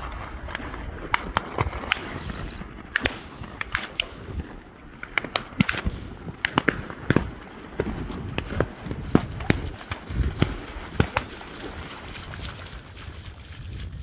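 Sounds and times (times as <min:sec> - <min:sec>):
sharp cracks: 0:01.0 - 0:02.2, 0:02.8 - 0:09.8.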